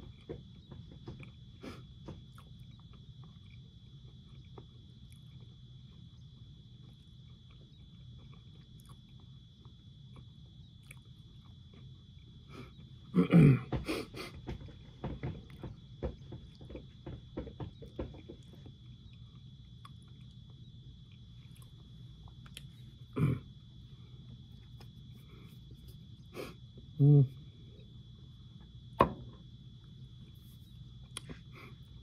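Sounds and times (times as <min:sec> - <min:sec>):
faint chewing: 0:00.0 - 0:12.9, 0:17.8 - 0:23.2, 0:24.2 - 0:26.9
loud throat noise: 0:13.1 - 0:14.3, 0:23.1 - 0:23.5
person sniffing: 0:13.8 - 0:14.4, 0:26.3 - 0:26.6.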